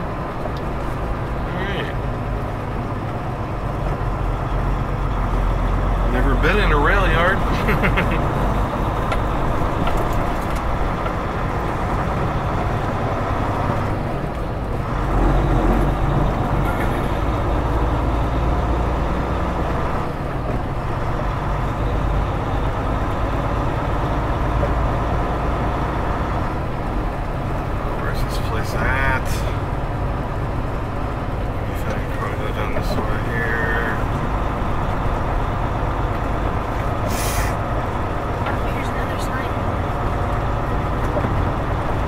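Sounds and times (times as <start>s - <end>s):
diesel truck engine running: 0.0s - 42.0s
road noise: 0.0s - 42.0s.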